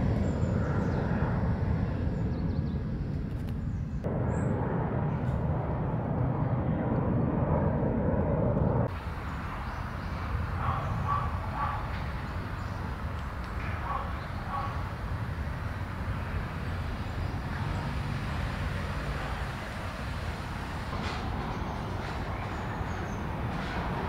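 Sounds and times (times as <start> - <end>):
low rumble of distant traffic: 0.0 - 24.0.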